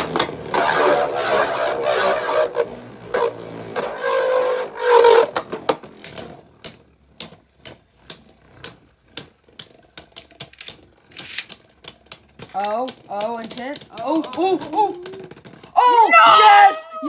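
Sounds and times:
spinning tops whirring scrape: 0.0s - 15.8s
spinning tops clacking: 5.0s - 15.8s.

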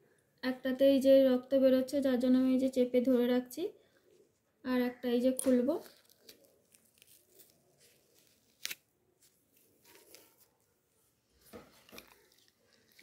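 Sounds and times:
tape and gauze peeled off: 5.8s - 10.7s.

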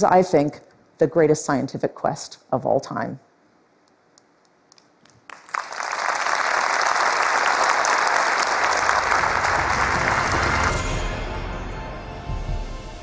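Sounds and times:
audience applauding loudly: 5.1s - 11.0s.

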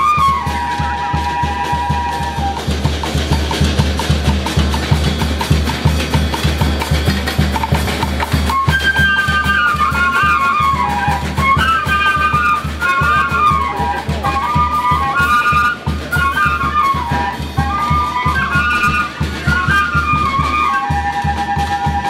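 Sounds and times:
steady low drum beat: 0.3s - 8.6s.

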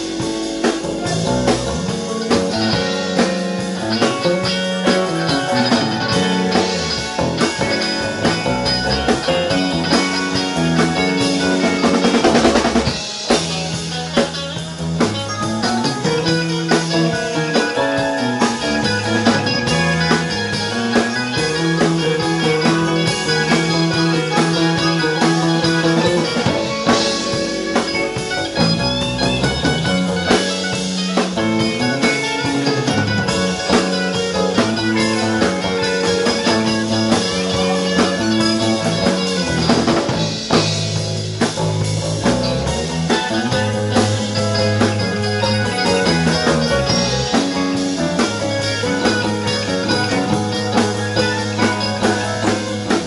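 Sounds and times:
bass guitar: 0.0s - 53.0s
drum kit: 0.0s - 53.0s
electric guitars: 0.0s - 53.0s
keyboard: 0.0s - 53.0s.

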